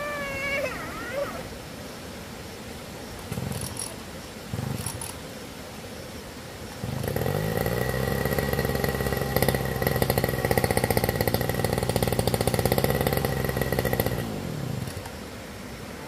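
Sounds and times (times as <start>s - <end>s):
lawn mower engine running: 6.8s - 15.2s.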